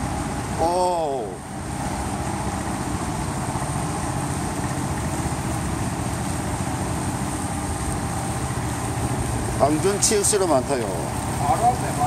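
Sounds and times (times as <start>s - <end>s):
truck engines rumbling: 0.0s - 12.0s.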